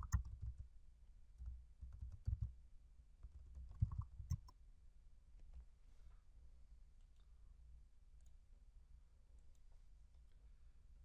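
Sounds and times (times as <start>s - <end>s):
typing on computer keyboard: 0.0s - 0.7s, 1.4s - 2.5s, 3.2s - 4.5s.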